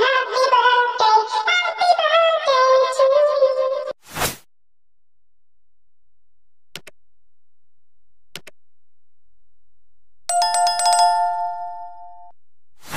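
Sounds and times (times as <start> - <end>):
mouse clicks: 6.8 - 7.0, 8.4 - 8.6
bright bell chime: 10.3 - 12.3.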